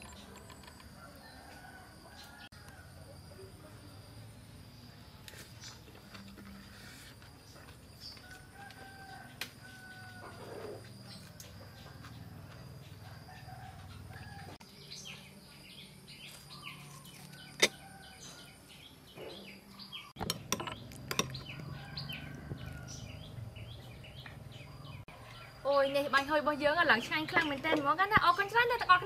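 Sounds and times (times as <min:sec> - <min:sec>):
small birds chirping: 0:03.9 - 0:26.2.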